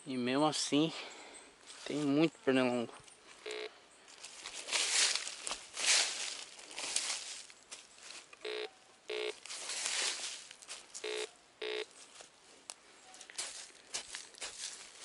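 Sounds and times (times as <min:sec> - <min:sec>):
rustling of leaves: 0:03.1 - 0:15.0
metal detector beeps: 0:03.4 - 0:03.7, 0:08.4 - 0:09.4, 0:11.0 - 0:11.9.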